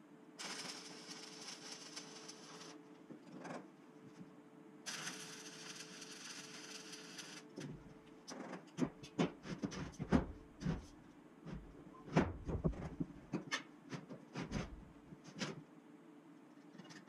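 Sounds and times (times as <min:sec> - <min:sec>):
welding arc crackling and hissing: 0:00.4 - 0:02.8, 0:04.9 - 0:07.6.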